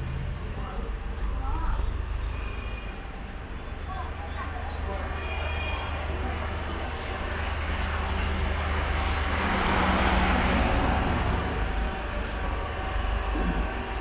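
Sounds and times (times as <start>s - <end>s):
vehicle passing: 8.0s - 12.3s.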